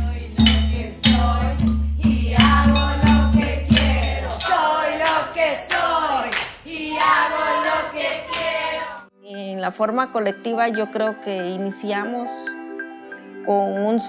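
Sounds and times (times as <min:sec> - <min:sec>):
rhythmic percussion: 0:00.0 - 0:08.9
women singing together: 0:00.0 - 0:09.1.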